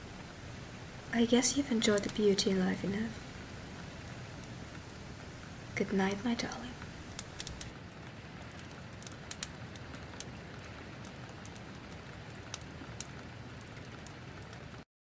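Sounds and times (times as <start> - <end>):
steady rain: 0.0 - 14.9
sharp drip-like ticks: 1.4 - 14.8.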